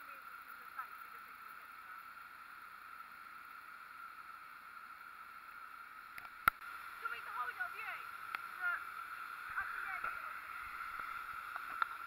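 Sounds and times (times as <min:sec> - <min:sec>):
waterfall rushing: 0:08.4 - 0:12.0.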